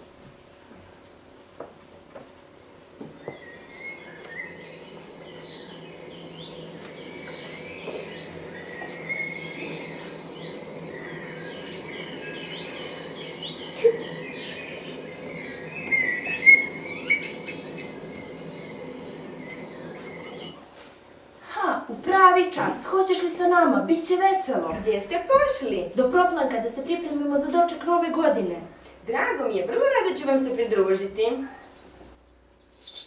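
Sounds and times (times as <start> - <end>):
steady low hum: 0.0 - 32.8
small birds chirping: 2.6 - 20.6, 29.1 - 33.0.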